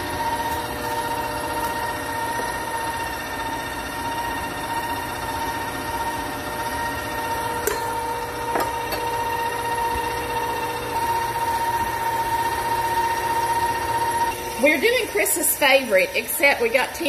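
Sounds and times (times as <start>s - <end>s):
electric mixer running: 0.0s - 17.0s.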